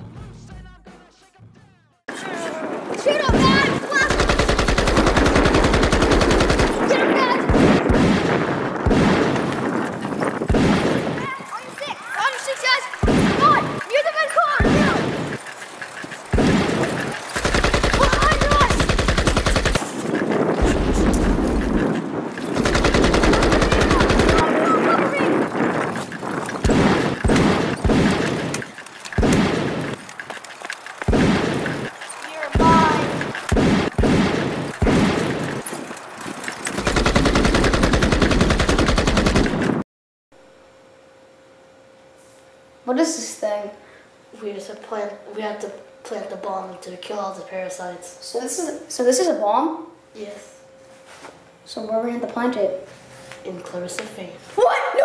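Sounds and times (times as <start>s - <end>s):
rapid automatic fire: 3.2s - 11.3s, 12.9s - 30.1s, 31.0s - 35.7s, 36.6s - 39.8s
single gunshot: 7.5s - 9.4s, 10.5s - 11.1s, 13.0s - 13.4s, 33.5s - 35.3s
toy gun shot: 16.4s - 19.9s.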